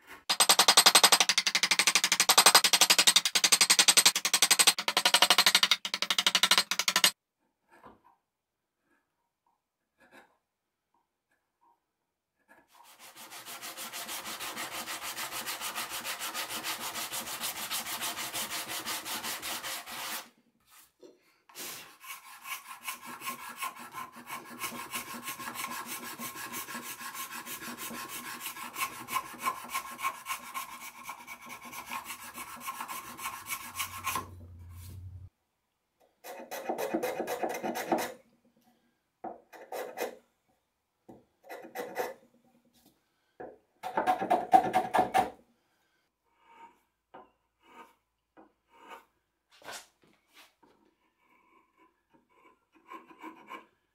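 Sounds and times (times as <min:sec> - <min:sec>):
hand file on wood: 0:12.4 - 0:20.9, 0:21.5 - 0:35.2, 0:36.2 - 0:38.2, 0:39.5 - 0:40.2, 0:41.4 - 0:42.2, 0:46.3 - 0:46.9, 0:47.6 - 0:53.9.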